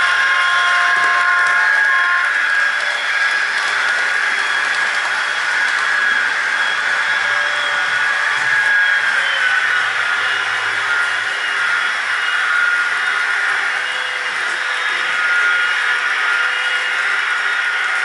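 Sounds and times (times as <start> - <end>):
model train diesel engine sound: 0.0 - 18.0.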